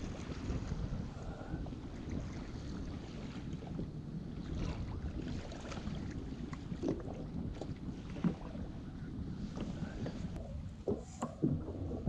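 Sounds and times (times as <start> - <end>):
waves lapping against hull: 0.0 - 12.0
wind on microphone: 0.0 - 12.0.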